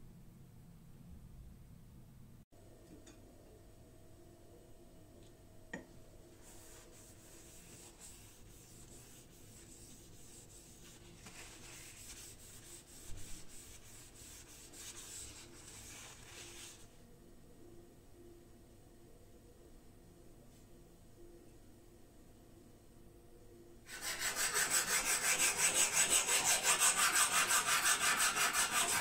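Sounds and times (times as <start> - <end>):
paper towel wiping wooden handle: 6.4 - 16.9, 23.9 - 29.0.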